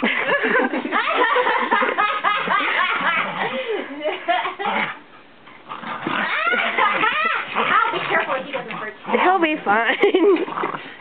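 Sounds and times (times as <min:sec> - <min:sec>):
people laughing: 0:00.0 - 0:05.0, 0:06.4 - 0:08.0, 0:09.7 - 0:10.6.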